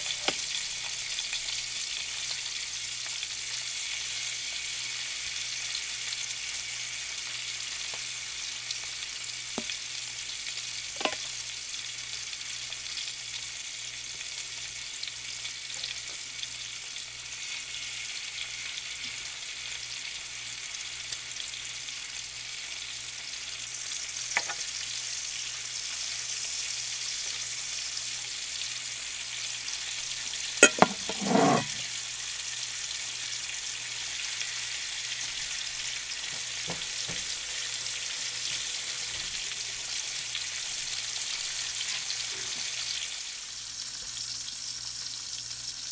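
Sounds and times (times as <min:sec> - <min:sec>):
bacon sizzling in fat: 0:00.0 - 0:45.9
metal fork clatter: 0:30.6 - 0:31.7.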